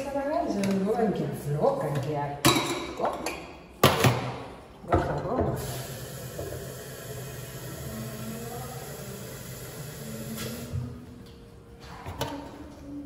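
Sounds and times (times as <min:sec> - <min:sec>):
tap water running into container: 0:05.4 - 0:10.9.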